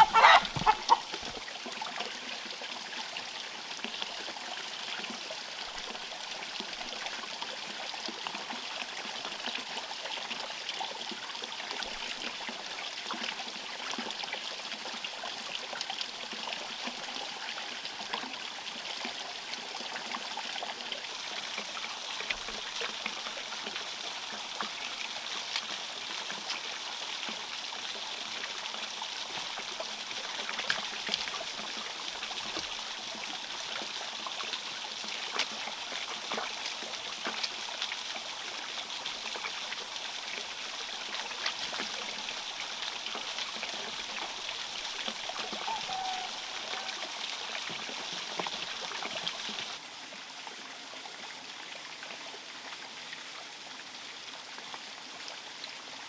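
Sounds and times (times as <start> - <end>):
thin stream of water splashing: 0.0 - 9.8, 17.8 - 50.6
small splashes and taps: 25.4 - 27.4, 30.4 - 31.7, 35.0 - 37.6.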